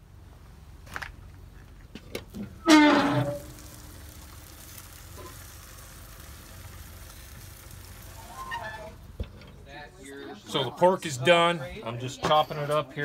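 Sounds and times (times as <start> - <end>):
faint sizzle: 0.0 - 13.0
metal lid hinges creaking: 2.2 - 3.7.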